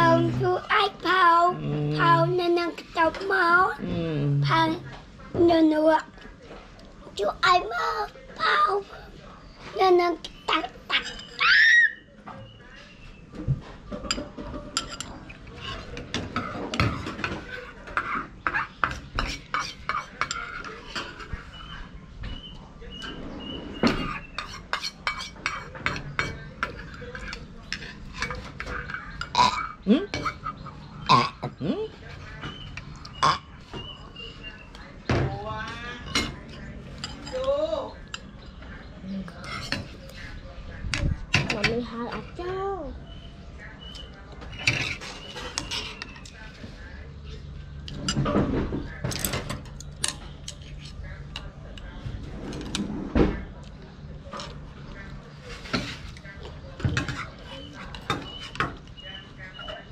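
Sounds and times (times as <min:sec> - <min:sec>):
chopsticks and spoon against bowls: 0:04.4 - 0:59.9
spoons clinking against bowls: 0:10.5 - 0:11.4, 0:14.0 - 0:21.8, 0:23.9 - 0:30.6.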